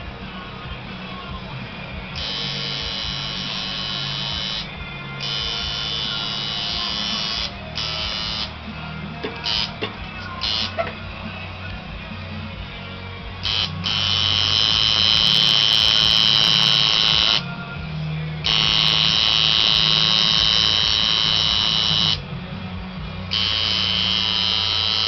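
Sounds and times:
tattoo machine buzzing: 2.2 - 8.6, 9.4 - 10.9, 13.4 - 17.5, 18.4 - 22.2, 23.3 - 25.0.

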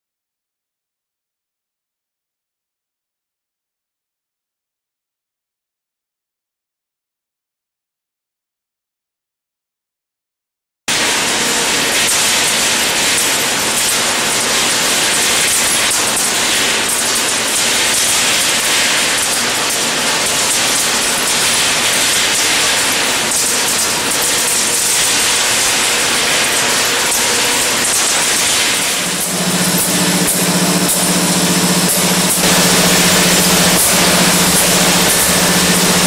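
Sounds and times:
machinery clatter and hiss: 10.9 - 36.0.

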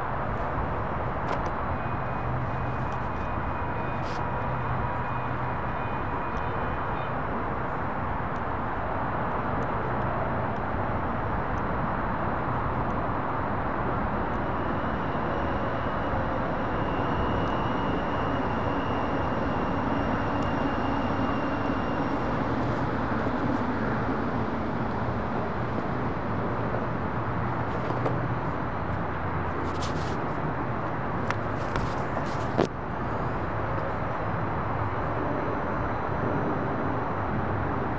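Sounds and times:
high steady whine: 0.0 - 37.9
light rail train rolling: 12.1 - 36.0.

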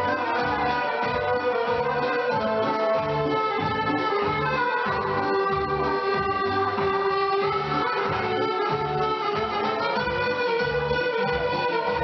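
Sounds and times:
held melody notes: 0.0 - 12.0
pulsing bass line: 0.0 - 12.0.

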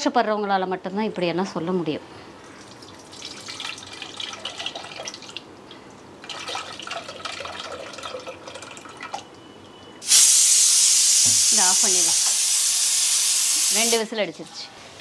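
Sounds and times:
water poured between bowls: 2.5 - 5.4, 6.2 - 9.2.

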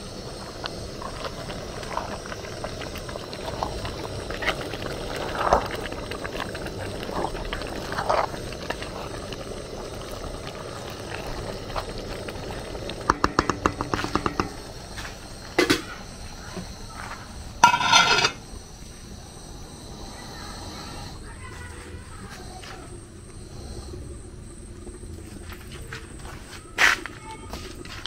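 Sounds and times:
soup bubbling on the boil: 0.0 - 21.4
sharp clicks and knocks: 13.1 - 14.6.

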